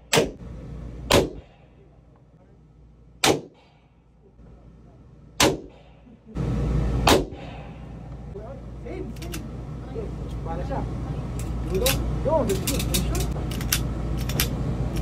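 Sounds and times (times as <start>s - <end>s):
steady low rumble: 0.0s - 15.0s
pistol shots echoing: 1.1s - 1.7s, 3.2s - 3.8s, 5.4s - 6.1s, 7.0s - 7.8s.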